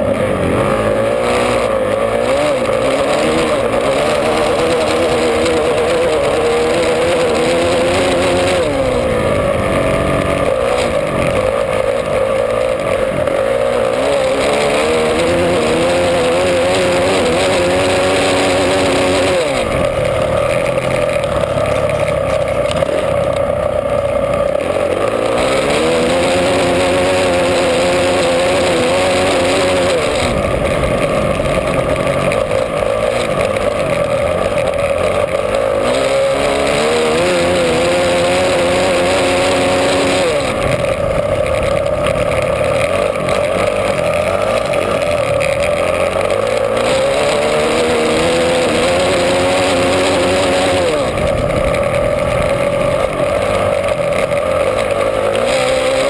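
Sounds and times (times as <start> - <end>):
motorcycle engine racing: 0.0 - 56.0.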